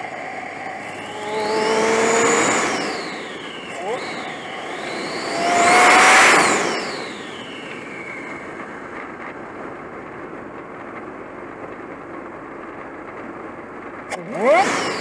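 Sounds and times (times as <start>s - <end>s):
engine running: 0.0s - 15.0s
turbocharger whoosh and whistle: 0.7s - 8.6s, 14.1s - 15.0s.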